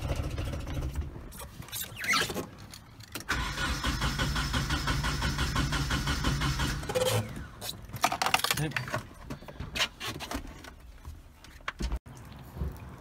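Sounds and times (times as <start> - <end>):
car engine cranked by starter: 3.2 - 7.5.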